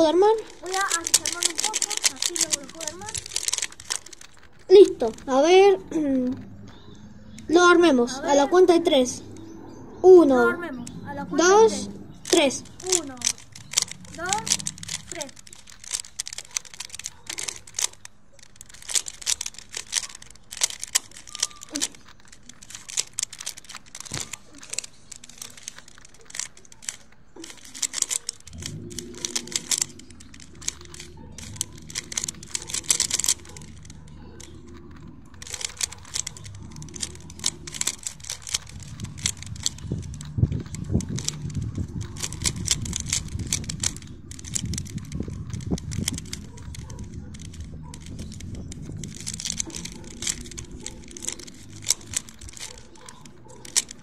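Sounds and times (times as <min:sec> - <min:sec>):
puzzle cube clicking and rattling: 0:00.0 - 0:54.0
steady low rumble: 0:28.4 - 0:54.0.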